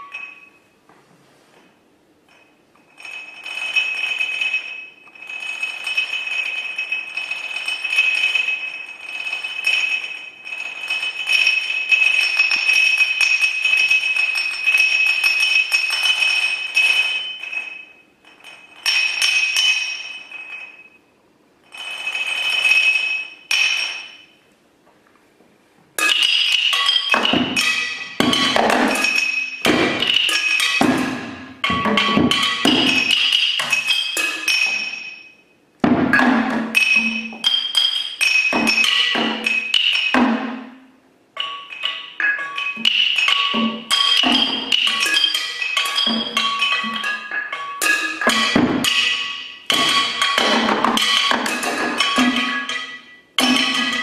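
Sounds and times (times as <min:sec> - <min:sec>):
high ringing percussion roll: 0:00.0 - 0:00.8, 0:02.3 - 0:24.4, 0:26.0 - 0:54.0
fast flurry of percussion strikes: 0:26.0 - 0:35.2, 0:35.8 - 0:40.8, 0:41.4 - 0:54.0.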